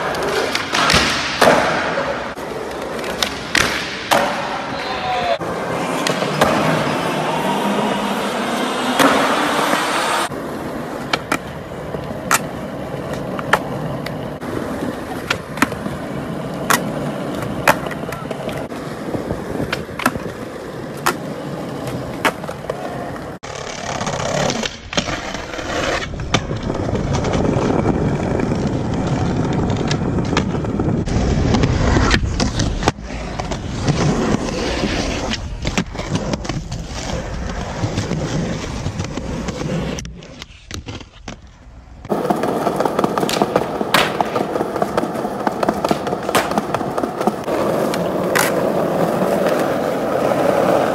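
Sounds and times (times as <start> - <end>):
skateboard clacks: 0.0 - 6.8, 9.0 - 25.1, 35.2 - 50.9
skateboard wheels rolling on concrete: 0.0 - 50.9.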